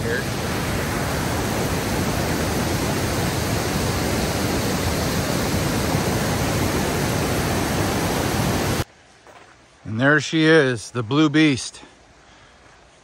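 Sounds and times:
falling water rushing: 0:00.0 - 0:08.9.

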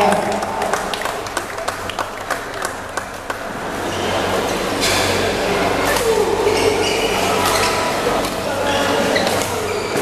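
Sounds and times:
spectators clapping: 0:00.0 - 0:04.3.

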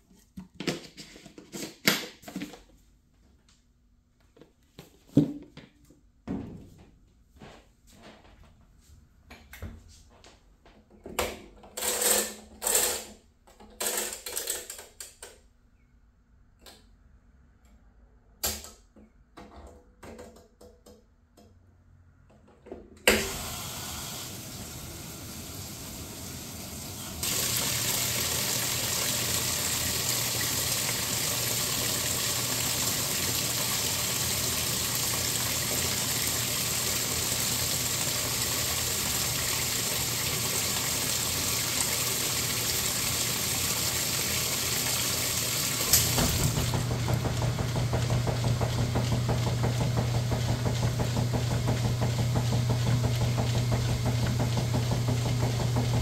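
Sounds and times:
water rushing into tub: 0:23.2 - 0:52.2
washing machine knocks and clicks: 0:45.8 - 0:56.0.

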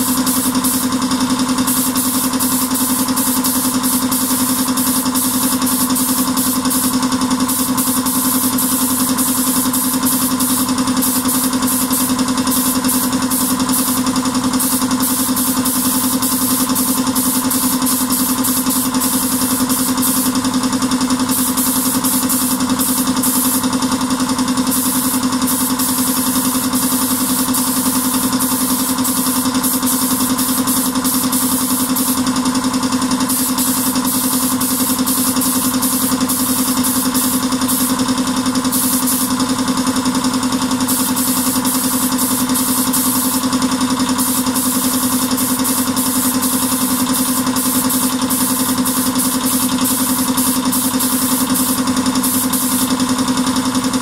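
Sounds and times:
machine humming and hissing: 0:00.0 - 0:54.0.

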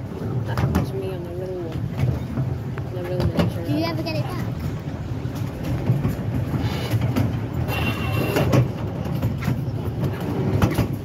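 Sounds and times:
train wheels rumbling on rail: 0:00.0 - 0:11.0
sharp clicks of train wheels: 0:05.3 - 0:11.0.

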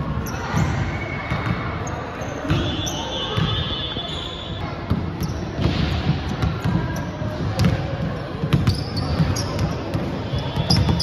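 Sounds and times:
basketball bouncing on wooden floor: 0:04.9 - 0:10.0.

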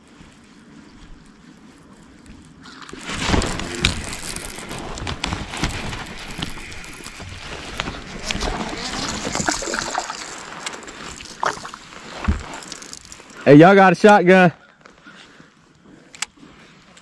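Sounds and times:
fish splashing at surface: 0:08.6 - 0:13.3.

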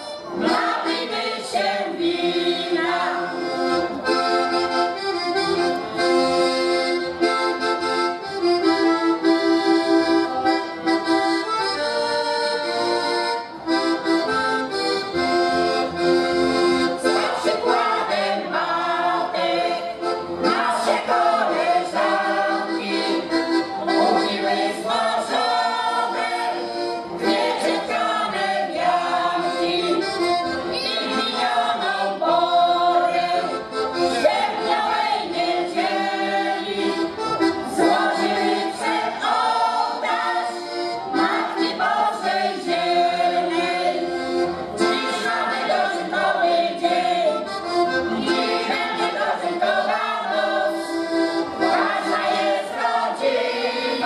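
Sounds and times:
folk choir singing: 0:00.0 - 0:05.4, 0:16.4 - 0:54.0
accordion: 0:00.0 - 0:54.0.

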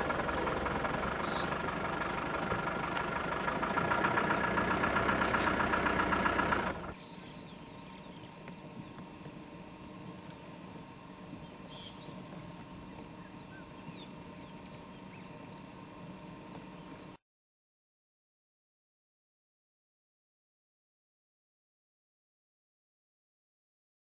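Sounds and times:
vehicle engine running: 0:00.0 - 0:08.2
faint bird chirps: 0:00.6 - 0:04.0, 0:06.7 - 0:09.7, 0:10.9 - 0:17.2.

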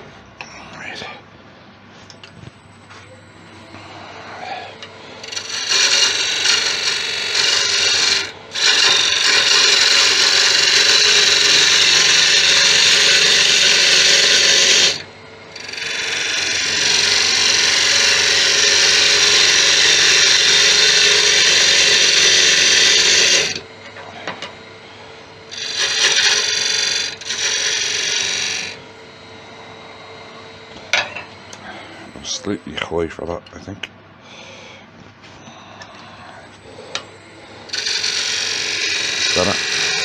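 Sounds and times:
wood lathe running: 0:03.6 - 0:32.9, 0:36.3 - 0:40.0
lathe tool cutting wood hiss: 0:04.2 - 0:15.0, 0:15.6 - 0:24.5, 0:25.5 - 0:28.8, 0:36.9 - 0:40.0.

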